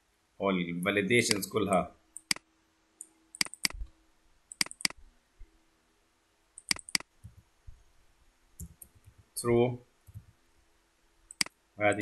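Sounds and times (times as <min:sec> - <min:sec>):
mouse button clicking: 0:06.6 - 0:07.1.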